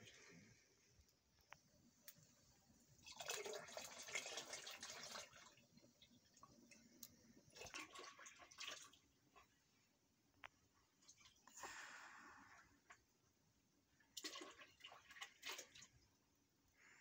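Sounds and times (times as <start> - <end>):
liquid pouring into plastic bucket: 3.0 - 6.6, 7.5 - 9.5, 14.1 - 16.0.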